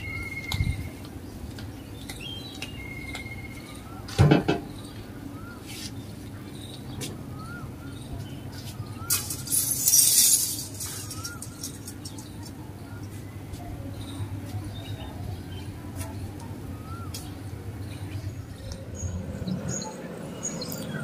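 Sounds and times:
bird whistling: 0.0s - 1.0s, 2.2s - 4.0s, 10.8s - 11.8s
bird chirping: 1.7s - 15.8s, 16.7s - 21.0s
rustling hiss: 9.1s - 12.0s.

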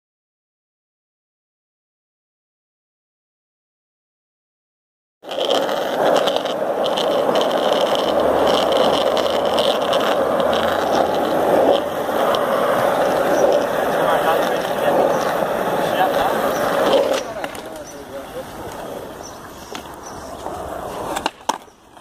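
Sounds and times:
skateboard wheels rolling on asphalt: 5.2s - 22.0s.

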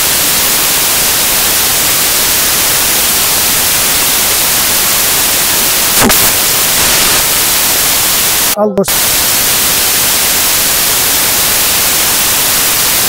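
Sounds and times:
loud static hiss: 0.0s - 13.0s.

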